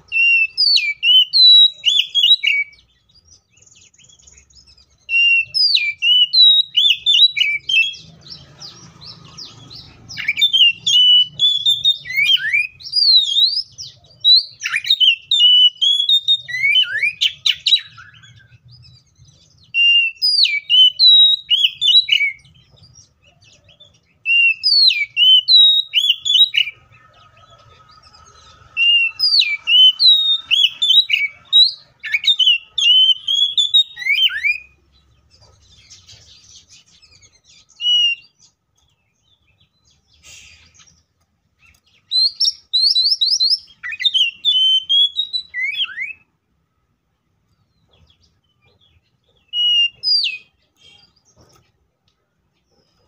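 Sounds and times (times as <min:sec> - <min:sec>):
bird singing whistled phrases: 0:00.0 - 0:08.1, 0:10.1 - 0:18.6, 0:19.6 - 0:22.5, 0:23.7 - 0:26.8, 0:28.8 - 0:34.8, 0:37.2 - 0:38.5, 0:41.6 - 0:46.3, 0:49.5 - 0:51.2.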